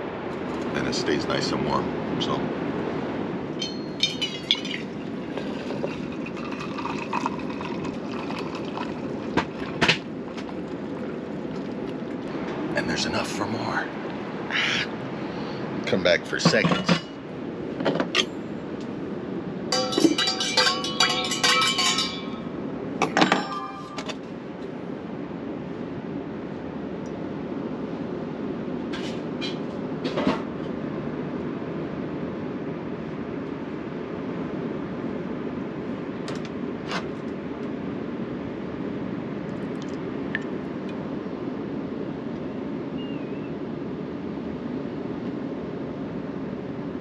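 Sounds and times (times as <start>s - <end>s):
ocean surf rushing: 0.0s - 17.8s
spoon clinking in metal mug: 3.6s - 8.9s, 19.7s - 22.4s, 23.2s - 24.1s.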